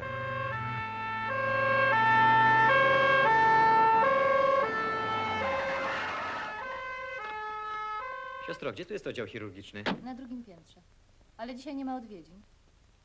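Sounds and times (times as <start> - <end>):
two-tone emergency siren: 0.0 - 8.6.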